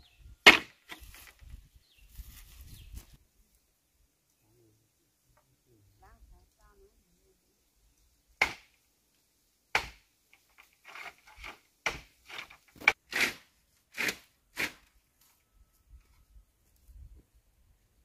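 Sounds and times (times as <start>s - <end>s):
dry wood and brush crunching: 0.4s - 3.6s, 10.2s - 17.2s.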